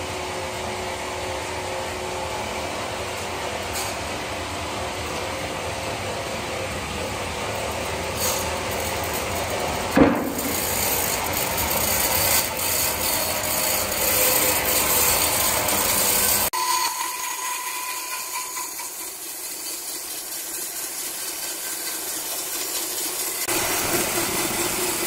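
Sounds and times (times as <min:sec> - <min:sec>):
band saw cutting log: 0:07.8 - 0:25.0.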